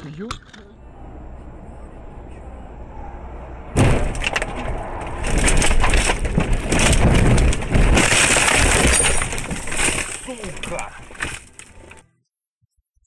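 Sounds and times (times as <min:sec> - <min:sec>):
car crash impact: 0:03.7 - 0:11.6
branches cracking and scraping: 0:04.0 - 0:12.0.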